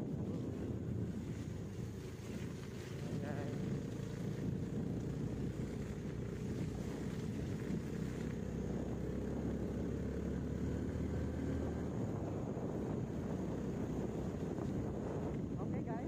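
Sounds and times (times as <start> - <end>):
vehicle engine running: 0.0 - 16.0.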